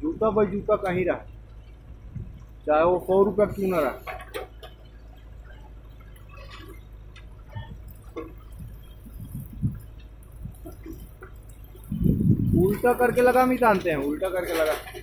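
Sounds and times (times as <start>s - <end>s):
diesel engine droning: 0.0s - 15.0s
bucket digging soil: 3.2s - 4.8s, 6.2s - 15.0s
faint clicks and knocks: 4.0s - 12.9s.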